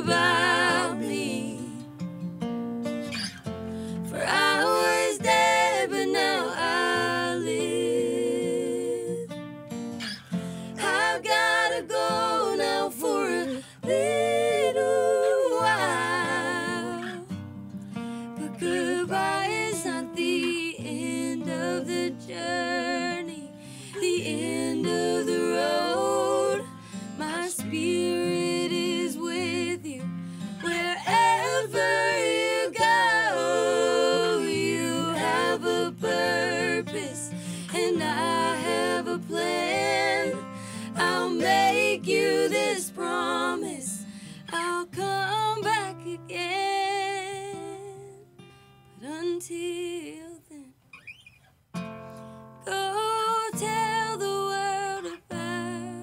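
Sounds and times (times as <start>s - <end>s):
women singing in harmony: 0.0s - 2.0s, 3.8s - 9.4s, 10.0s - 17.4s, 18.4s - 48.2s, 49.0s - 50.7s, 52.6s - 56.0s
acoustic guitars: 0.0s - 56.0s.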